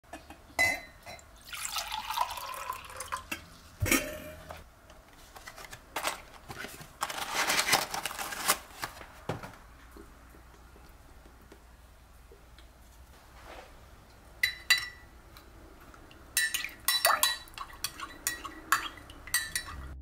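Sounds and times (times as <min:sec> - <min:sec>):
glass clinking: 0:00.2 - 0:04.4, 0:14.4 - 0:15.1, 0:16.4 - 0:20.0
water pouring into glass mug: 0:01.3 - 0:03.5
paper wrapper crinkling: 0:05.3 - 0:09.2.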